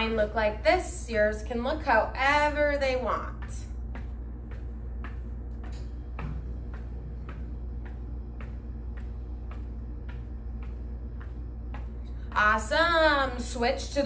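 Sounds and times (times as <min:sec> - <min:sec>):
sock feet tapping floor: 0:00.0 - 0:14.0
steady low hum: 0:00.0 - 0:14.0.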